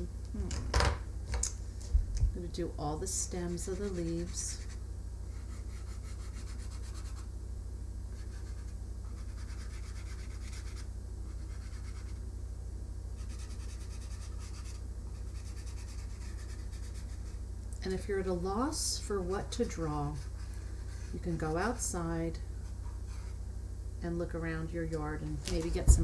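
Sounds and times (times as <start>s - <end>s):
low electrical hum: 0.0s - 26.0s
marker scrubbing on foam plate: 3.3s - 7.3s, 8.1s - 12.2s, 13.2s - 17.4s, 19.5s - 21.8s, 22.6s - 23.4s.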